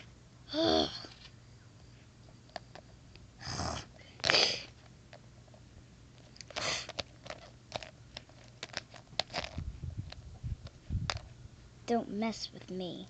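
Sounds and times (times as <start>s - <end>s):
plastic figures clicking on asphalt: 6.4s - 11.3s.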